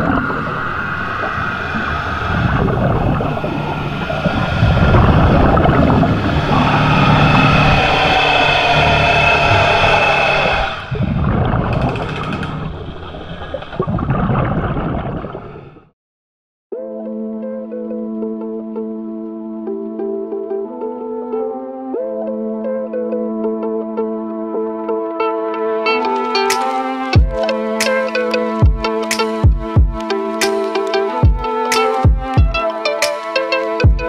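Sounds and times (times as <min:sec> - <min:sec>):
motorboat engine whine underwater: 0:00.0 - 0:15.9.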